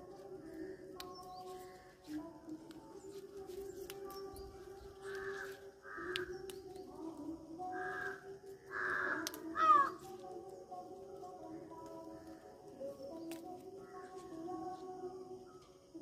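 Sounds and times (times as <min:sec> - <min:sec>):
crow cawing: 0:05.2 - 0:06.3, 0:07.7 - 0:10.0.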